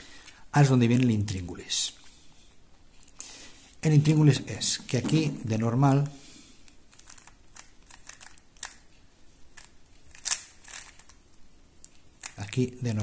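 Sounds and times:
puzzle cube clicking: 6.9s - 8.9s, 9.5s - 11.2s, 11.8s - 12.6s.

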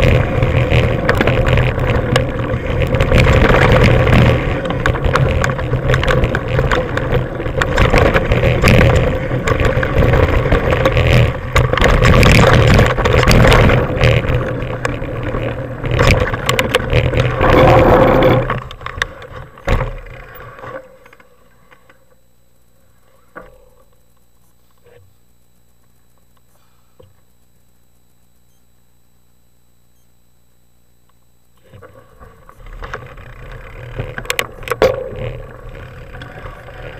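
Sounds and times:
tyre rumble: 0.0s - 21.1s, 31.6s - 36.9s
bike rattling over bumps: 0.0s - 21.6s, 31.6s - 36.9s.

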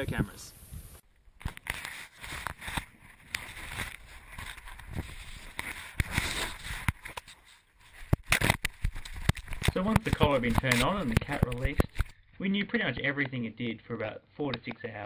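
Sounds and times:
fur rubbing against camera housing: 0.7s - 12.2s.

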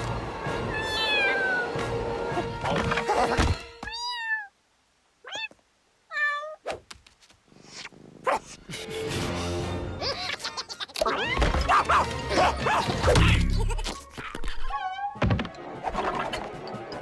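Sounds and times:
music: 0.0s - 3.8s, 8.7s - 10.1s, 11.2s - 17.0s.

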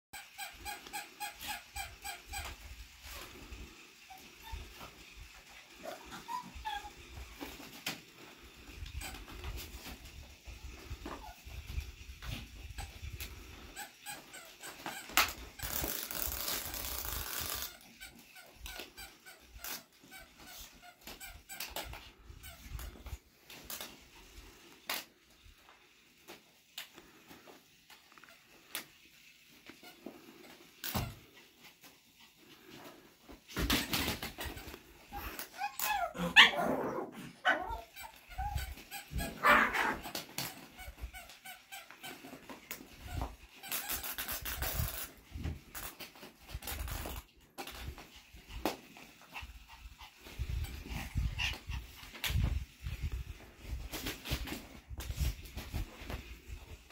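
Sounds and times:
fabric toy rustling: 0.8s - 19.0s
small dog panting: 48.0s - 52.6s.

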